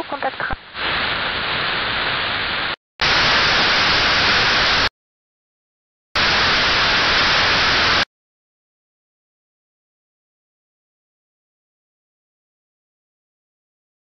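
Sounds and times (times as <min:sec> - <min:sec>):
radio static hiss: 0:00.0 - 0:04.9, 0:06.2 - 0:08.1.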